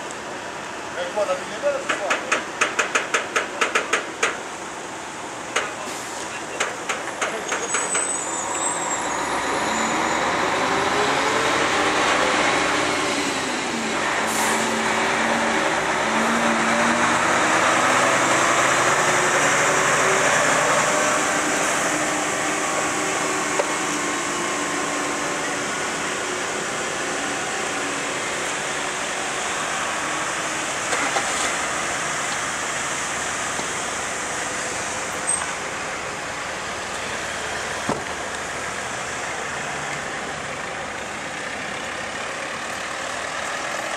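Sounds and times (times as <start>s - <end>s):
diesel truck engines: 0.0s - 43.9s.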